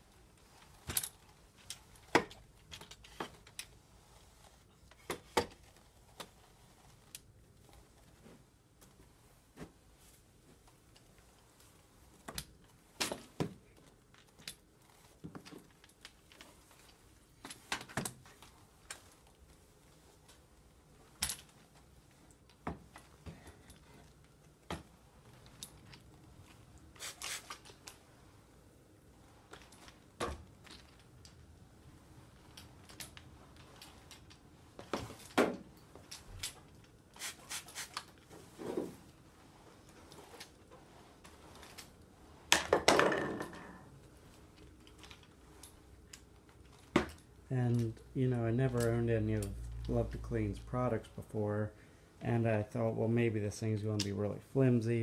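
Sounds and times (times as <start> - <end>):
mop clicks and knocks on floor: 34.8 - 35.8, 42.5 - 43.8
mop pad sliding over wooden floor: 37.2 - 42.3.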